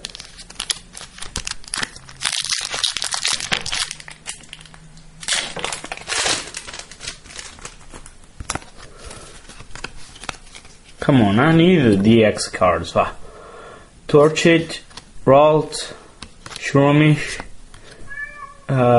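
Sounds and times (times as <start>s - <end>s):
foil wrapper crinkling and tearing: 0.0s - 10.8s.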